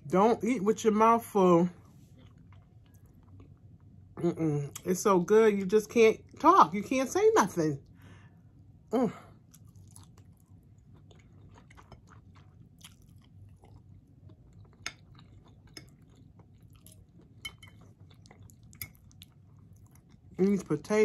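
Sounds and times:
person chewing: 2.0s - 3.9s, 9.3s - 20.4s.

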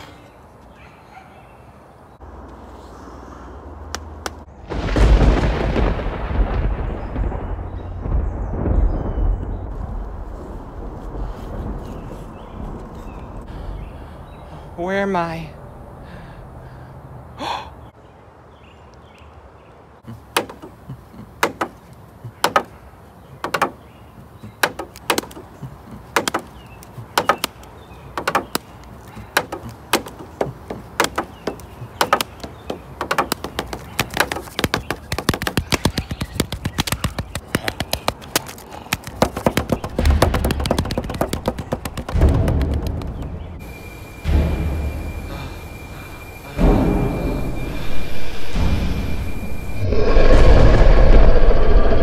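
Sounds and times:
heavy low booms: 4.5s - 14.0s, 42.2s - 52.0s.

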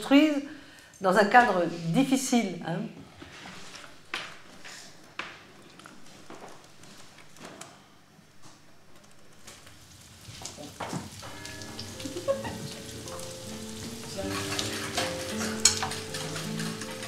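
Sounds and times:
pot boiling: 8.7s - 17.0s
soft music: 11.2s - 17.0s.

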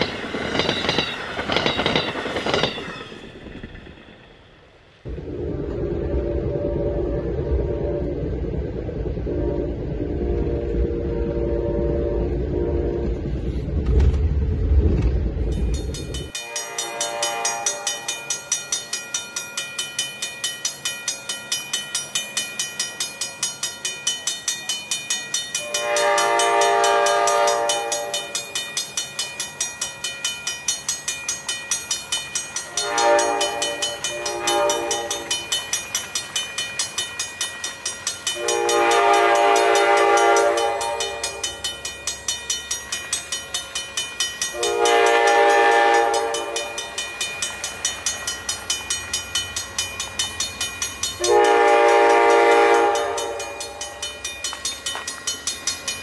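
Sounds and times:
low rumble: 5.0s - 16.3s
train air horn blasts: 9.2s - 13.4s, 16.4s - 18.2s, 25.6s - 28.4s, 32.7s - 35.4s, 38.4s - 41.6s, 44.5s - 46.9s, 51.2s - 53.8s.

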